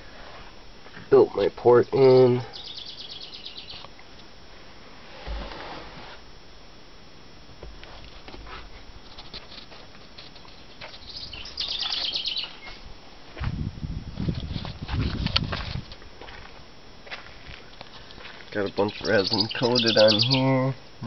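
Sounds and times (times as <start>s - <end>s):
songbird trill: 1.9s - 4.0s, 10.3s - 12.9s, 18.0s - 20.8s.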